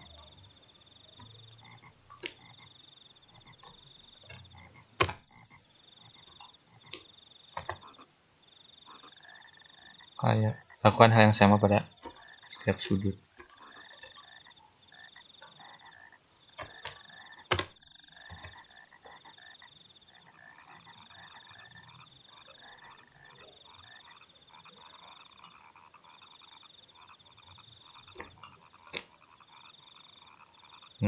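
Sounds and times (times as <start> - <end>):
sharp clicks: 5.0 - 5.3, 16.6 - 18.6
high trilling animal calls: 7.8 - 31.0.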